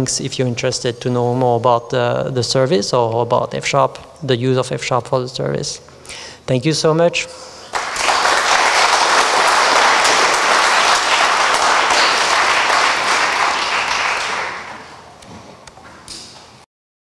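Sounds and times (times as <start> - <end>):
audience applauding: 7.7 - 15.1.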